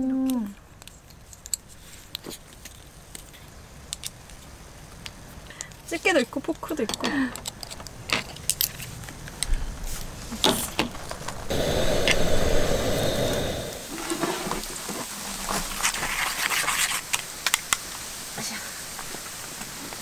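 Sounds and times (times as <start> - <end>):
rushing noise: 11.3 - 14.7.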